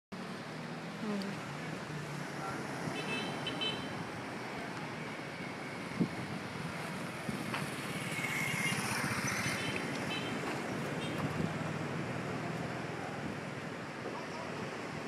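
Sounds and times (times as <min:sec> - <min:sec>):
wind buffeting microphone: 0:05.8 - 0:07.9.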